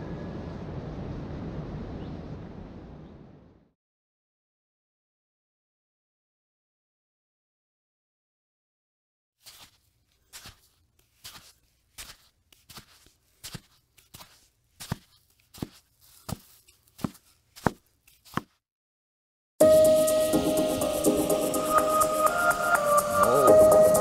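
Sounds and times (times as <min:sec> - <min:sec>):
crunching footsteps: 0:09.4 - 0:18.6.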